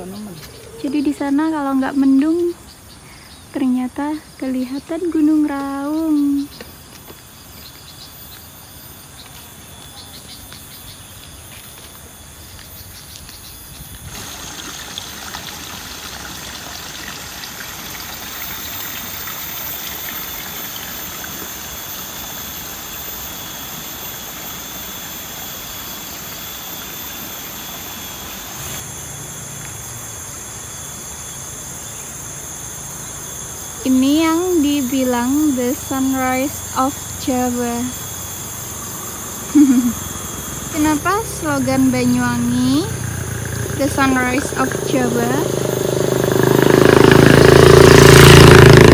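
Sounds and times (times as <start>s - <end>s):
insects trilling: 0.0s - 48.9s.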